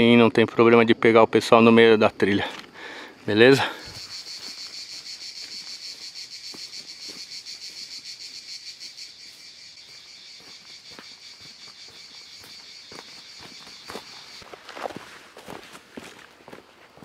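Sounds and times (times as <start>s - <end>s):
high-pitched insect chorus: 0.0s - 17.0s
footfalls on dry leaves: 3.9s - 7.9s, 9.2s - 17.0s.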